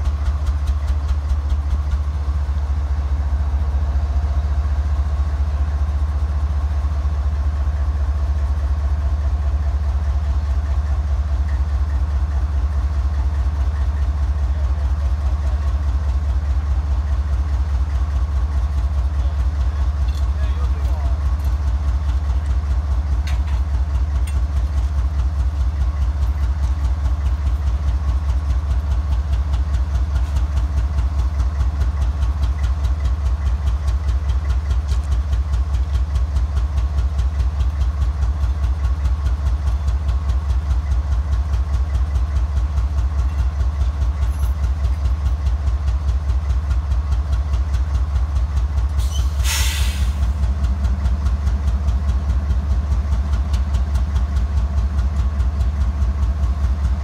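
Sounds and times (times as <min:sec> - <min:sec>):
diesel locomotive idling: 0:00.0 - 0:57.0
sharp hiss of air: 0:49.0 - 0:50.3.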